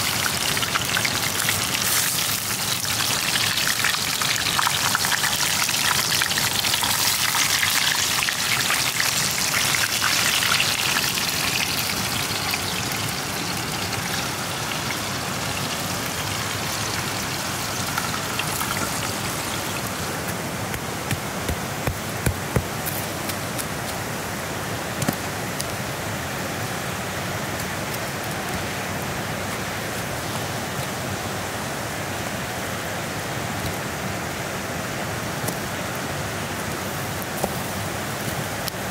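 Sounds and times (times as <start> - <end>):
chicken sizzling in a pan: 0.0 - 20.0
campfire crackles: 0.0 - 38.9
creek water flowing: 0.0 - 38.9.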